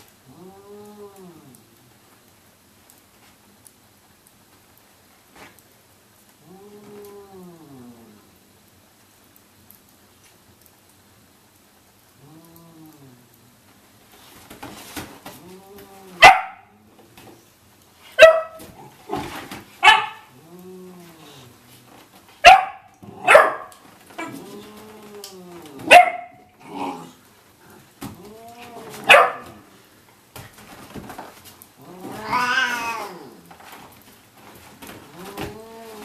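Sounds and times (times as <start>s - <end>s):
cat growling: 0.0s - 1.9s, 6.4s - 8.4s, 12.1s - 13.6s, 15.3s - 17.0s, 20.2s - 22.1s, 24.1s - 26.0s, 26.6s - 29.9s, 31.7s - 33.8s, 34.8s - 36.0s
cat snarling: 0.2s - 1.8s, 6.4s - 8.3s, 12.2s - 13.4s, 20.2s - 21.9s, 24.2s - 26.0s, 26.6s - 29.8s, 31.8s - 33.5s, 35.0s - 36.0s
puppy barking: 16.2s - 16.7s, 18.2s - 18.6s, 19.8s - 20.3s, 22.4s - 23.8s, 25.9s - 26.4s, 29.0s - 29.6s.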